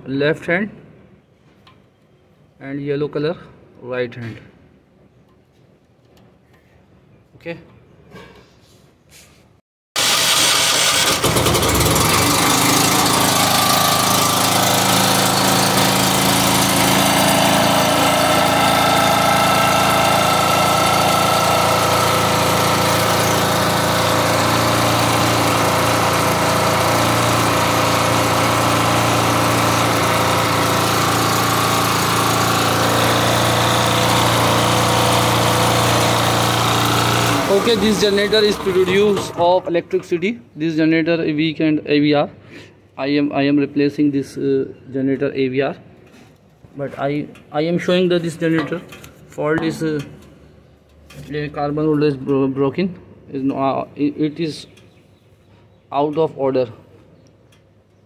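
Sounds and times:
portable generator engine running: 10.0 - 39.7.

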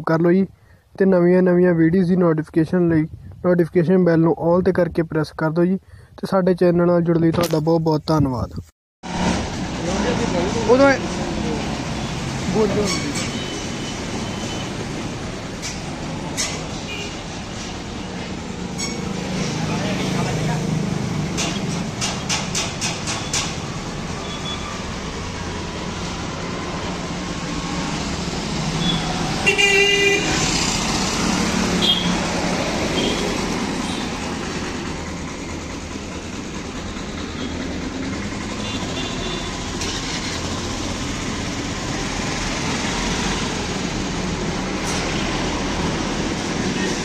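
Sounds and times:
street traffic noise: 0.0 - 47.0
vehicle horn honking: 16.8 - 17.2, 28.8 - 30.5, 31.8 - 32.2, 33.0 - 34.1, 38.6 - 40.1.

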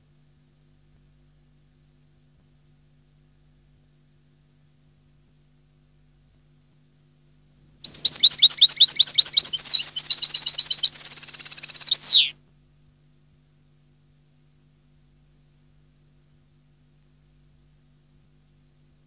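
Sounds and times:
goldfinch song: 7.8 - 12.3.

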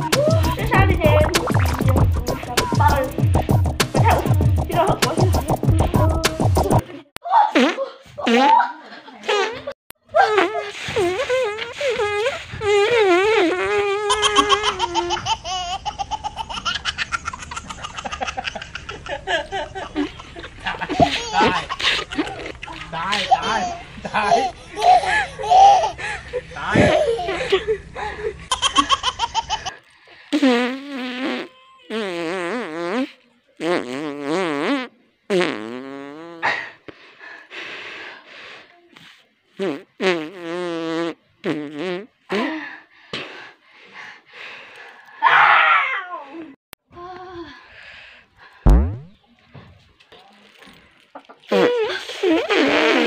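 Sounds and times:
long wobbling fart sounds: 0.4 - 6.8, 10.2 - 15.1, 30.3 - 36.5, 39.6 - 42.1, 48.7 - 49.2, 51.5 - 53.0
high-pitched laughter: 14.0 - 27.8.

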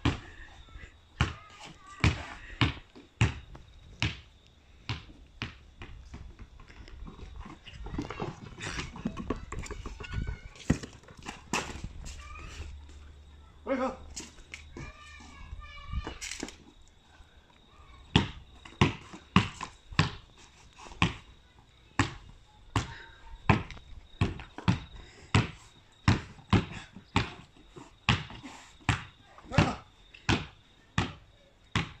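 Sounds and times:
basketball bouncing: 2.0 - 4.3, 18.1 - 20.2, 23.5 - 27.4, 28.1 - 31.2.

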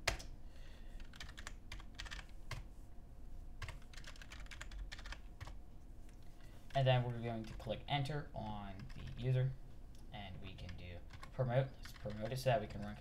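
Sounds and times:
keyboard typing: 1.0 - 2.6, 3.6 - 5.6, 6.7 - 7.7, 8.8 - 9.3, 10.6 - 13.0.

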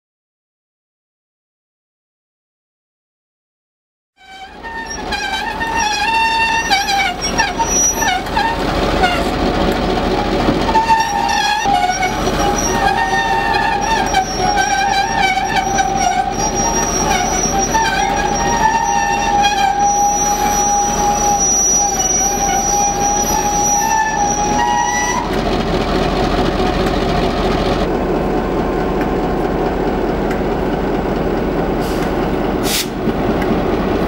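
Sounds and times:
metallic turntable screech: 4.2 - 9.4, 10.2 - 25.4.

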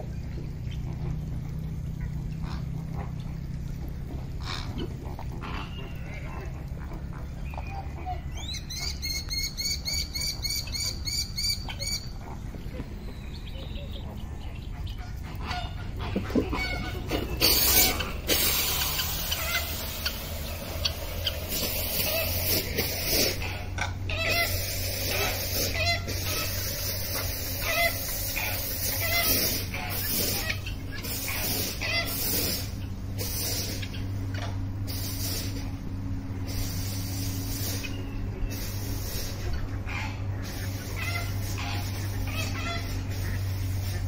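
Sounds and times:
steady low hum: 0.0 - 44.0
fowl clucking: 4.1 - 44.0
loud hissing rasp: 16.8 - 34.0, 34.8 - 35.8, 36.4 - 39.6.

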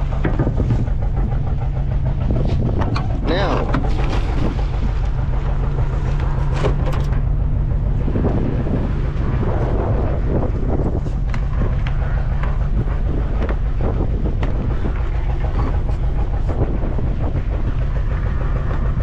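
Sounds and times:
boat engine running slowly: 0.0 - 19.0
wind buffeting microphone: 0.0 - 19.0
knocks and clatter on deck: 0.1 - 1.0.

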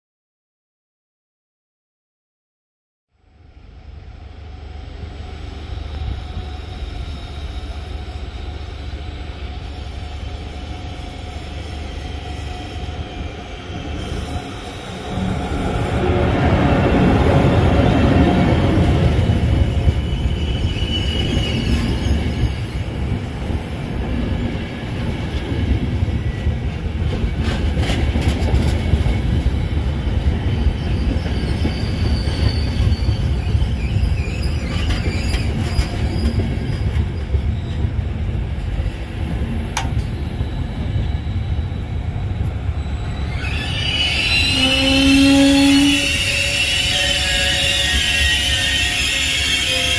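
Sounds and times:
passing train rumble: 3.2 - 49.9
high wheel squeal: 9.6 - 16.4, 17.8 - 22.9, 30.5 - 37.8, 40.2 - 49.9.

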